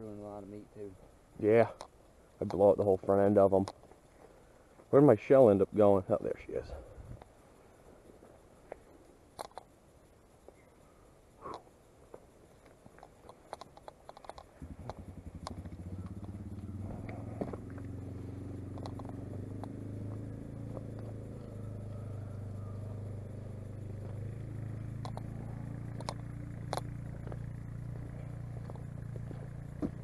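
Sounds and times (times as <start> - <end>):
engine idling: 14.2 - 30.0
footsteps on stony dirt: 16.0 - 18.0, 24.0 - 24.3, 25.5 - 30.0.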